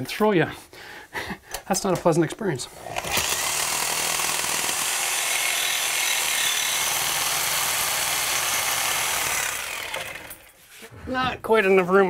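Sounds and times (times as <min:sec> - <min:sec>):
reciprocating saw cutting steel pipe: 0:02.9 - 0:10.6.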